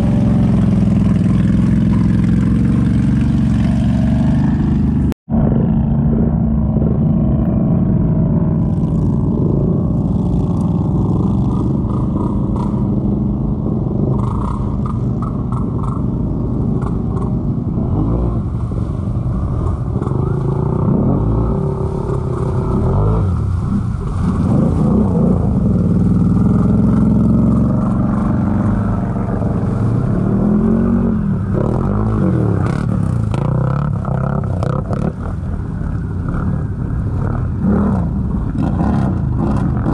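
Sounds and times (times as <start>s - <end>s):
mud churning and splashing: 0.0s - 5.0s, 18.3s - 37.2s
atv engines revving: 0.0s - 39.9s.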